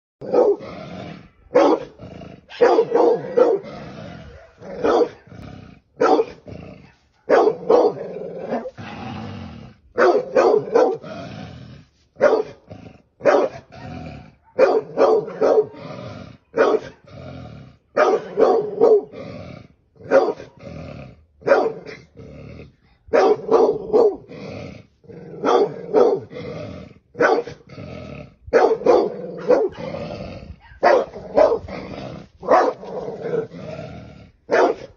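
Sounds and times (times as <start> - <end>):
dog barking: 0.2 - 0.6, 1.5 - 3.7, 4.3 - 5.4, 6.0 - 6.4, 7.1 - 8.8, 10.0 - 11.0, 12.2 - 12.6, 13.2 - 15.8, 16.5 - 17.0, 18.0 - 19.1, 20.0 - 20.6, 21.4 - 22.0, 23.1 - 24.3, 25.4 - 26.3, 27.2 - 27.6, 28.5 - 29.9, 30.6 - 31.7, 32.4 - 33.5, 34.5 - 34.9.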